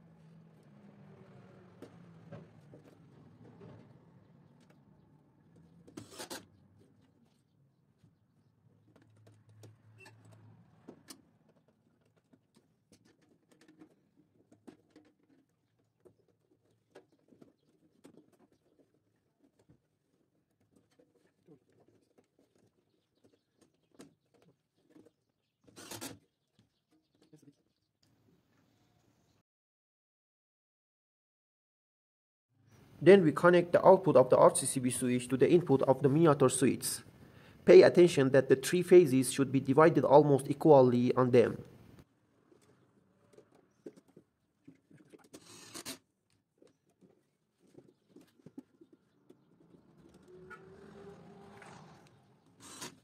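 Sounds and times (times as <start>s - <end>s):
clicks and scrapes of wiring: 5.5s - 8.1s, 8.7s - 28.2s, 41.9s - 53.0s.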